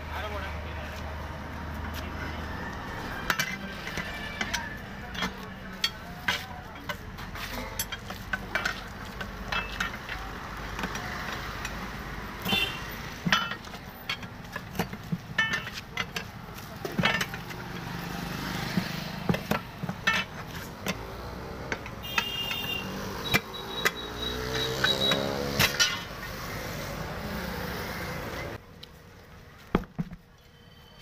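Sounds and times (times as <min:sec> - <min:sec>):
tyre levers clinking on rim: 0:03.2 - 0:11.8, 0:12.4 - 0:18.0, 0:19.3 - 0:26.1.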